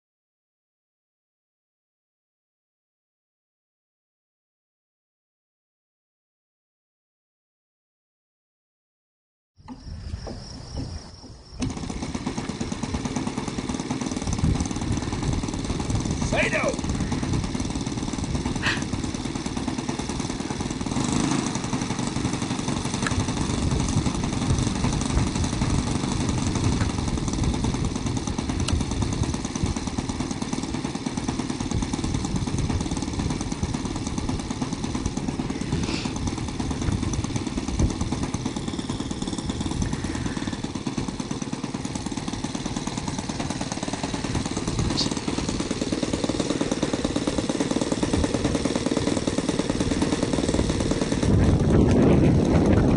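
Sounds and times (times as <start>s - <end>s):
model airplane engine running: 11.5s - 52.9s.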